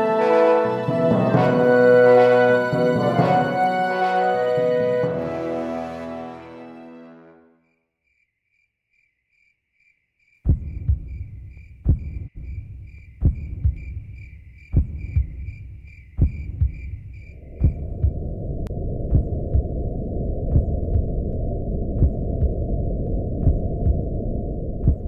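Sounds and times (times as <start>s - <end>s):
crickets chirping: 8.0s - 25.0s
heartbeat thumps: 10.5s - 25.0s
low rushing noise: 17.1s - 25.0s.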